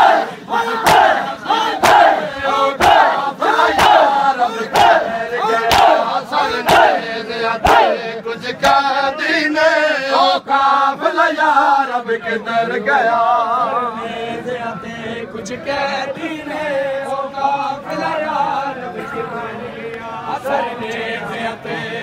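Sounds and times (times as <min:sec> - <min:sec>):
men chanting in chorus: 0:00.0 - 0:22.0
chest-beating slaps: 0:00.8 - 0:01.2, 0:03.8 - 0:04.0, 0:05.7 - 0:06.0.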